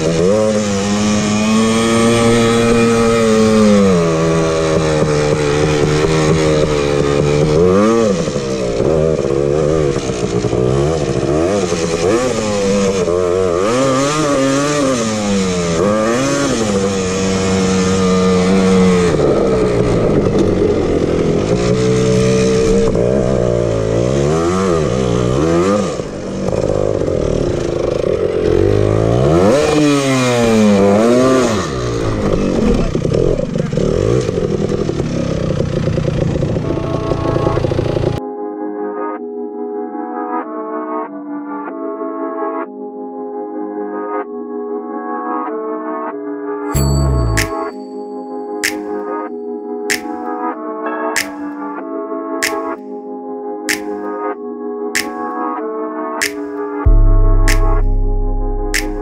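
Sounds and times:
two-stroke engine revving: 0.0 - 38.2.

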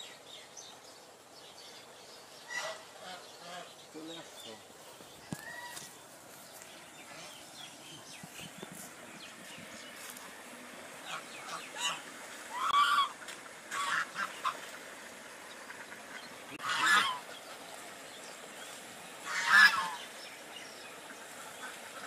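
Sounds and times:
geese honking: 2.5 - 3.8, 11.0 - 14.8, 15.4 - 17.4, 19.2 - 20.2.

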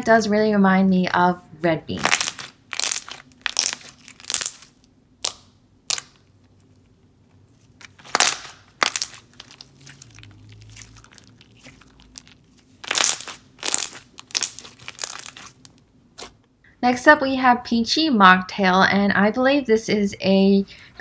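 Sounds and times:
slime squishing: 2.0 - 16.4.

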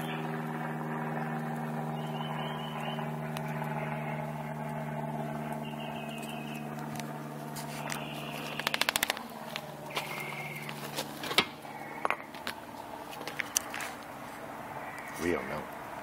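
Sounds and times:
low mechanical hum: 0.0 - 16.0
rattle of sharp clicks: 8.4 - 9.2.

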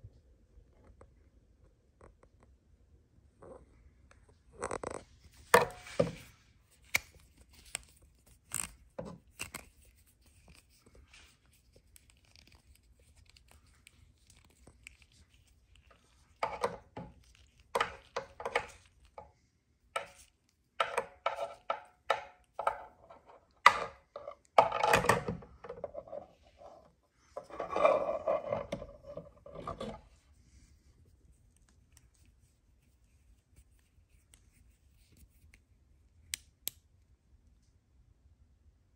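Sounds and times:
scraping and rustling: 4.6 - 35.6.

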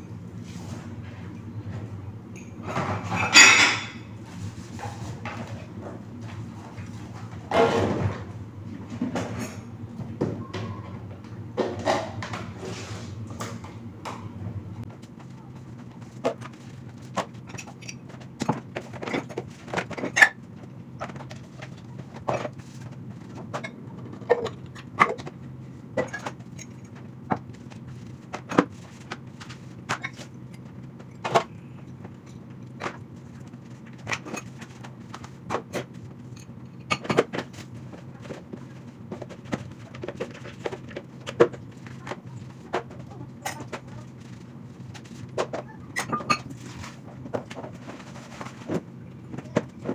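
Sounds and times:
dishes knocking and clinking: 2.4 - 5.6, 6.7 - 12.8.

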